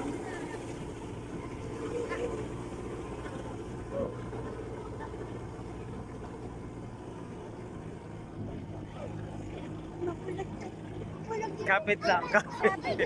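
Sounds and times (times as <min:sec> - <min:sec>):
off-road vehicle engine running: 0:00.0 - 0:13.0.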